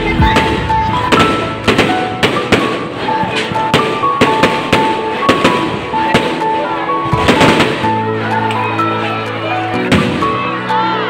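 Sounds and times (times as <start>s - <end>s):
background music with held melody: 0.0s - 11.0s
fireworks bangs: 0.2s - 8.1s, 9.9s - 10.4s.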